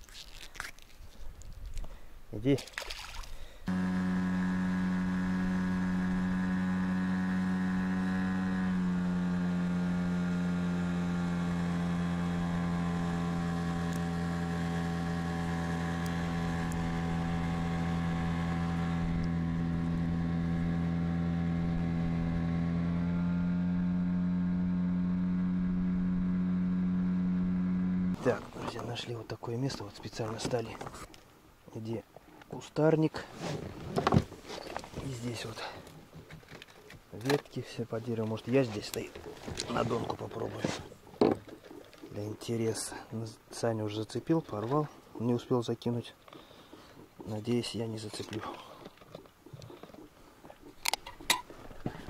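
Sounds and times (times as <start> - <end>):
motorboat engine droning: 3.7 - 28.9, 38.2 - 43.0.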